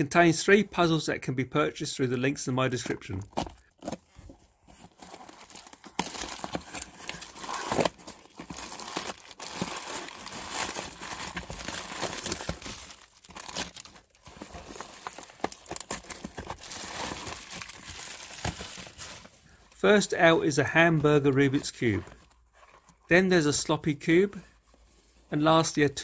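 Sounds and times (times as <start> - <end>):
plastic and bubble wrap crinkling: 3.1 - 19.8
cardboard parcel pulled open: 3.8 - 19.4.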